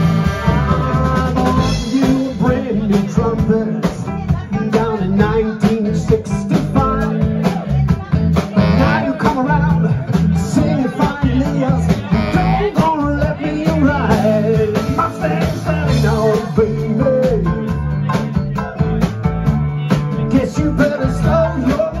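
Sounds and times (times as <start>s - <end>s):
trumpet and trombone: 0.0s - 1.4s, 8.6s - 9.4s, 12.1s - 12.7s
person singing: 0.0s - 19.0s, 20.1s - 22.0s
drums: 0.0s - 22.0s
electric guitar: 0.0s - 22.0s
saxophones: 8.6s - 9.3s, 12.1s - 12.8s.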